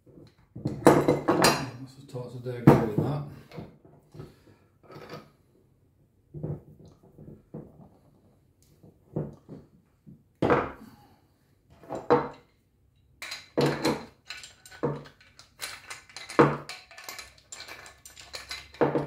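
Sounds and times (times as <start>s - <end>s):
metal fittings clinking on wood: 13.2s - 19.0s.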